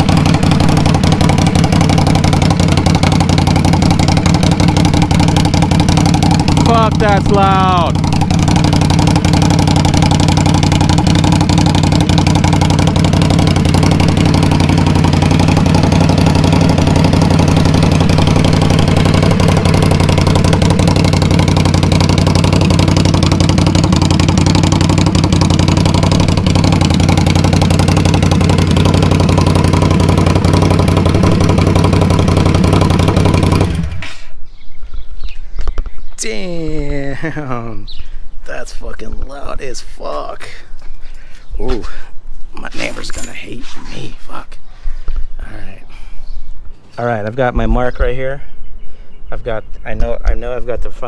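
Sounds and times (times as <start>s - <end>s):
motorcycle engine idling: 0.0s - 34.7s.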